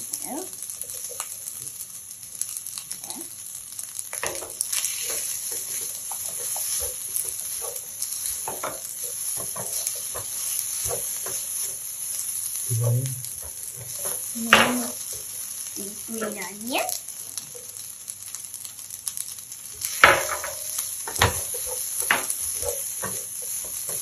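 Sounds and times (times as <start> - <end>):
rice sizzling in a frying pan: 0.0 - 24.0
spatula scraping and tapping pan: 4.1 - 15.4, 19.8 - 24.0.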